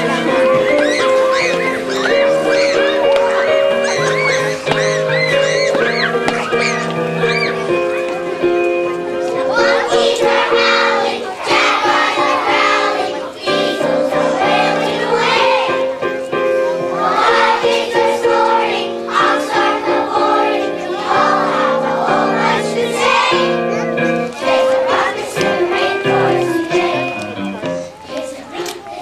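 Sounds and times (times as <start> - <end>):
instrumental accompaniment: 0.0 - 28.8
children singing in chorus: 9.2 - 29.0.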